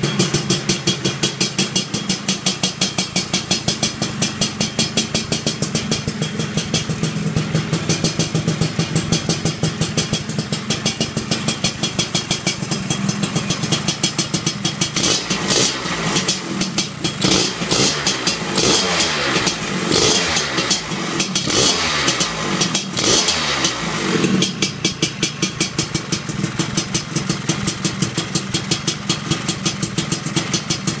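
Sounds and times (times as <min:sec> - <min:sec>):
scooter engine idling and revving: 0:00.0 - 0:31.0.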